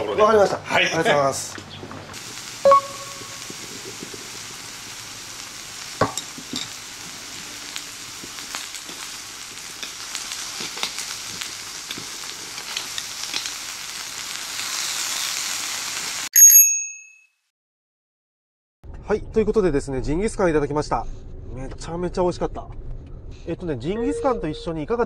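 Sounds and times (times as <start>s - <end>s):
meat sizzling on grill plate: 2.1s - 16.3s.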